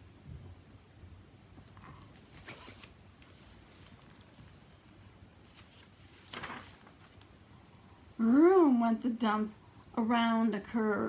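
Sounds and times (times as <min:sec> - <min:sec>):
book page rustling: 0:01.6 - 0:04.7, 0:05.4 - 0:07.5.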